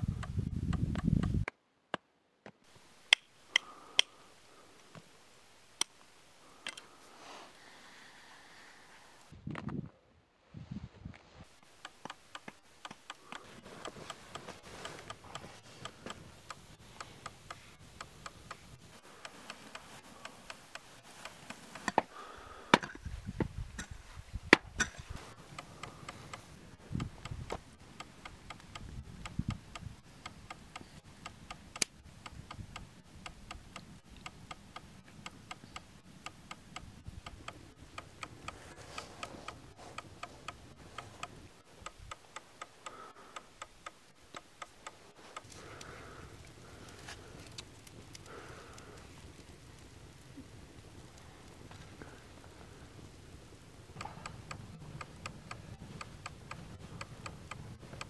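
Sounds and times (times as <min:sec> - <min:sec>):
clock-like ticking: 0:11.6 - 0:22.0, 0:25.5 - 0:46.6, 0:53.4 - 0:58.0.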